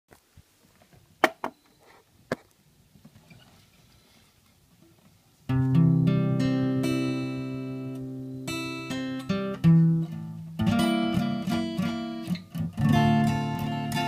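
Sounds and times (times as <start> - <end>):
acoustic guitar strum: 5.5 - 14.0.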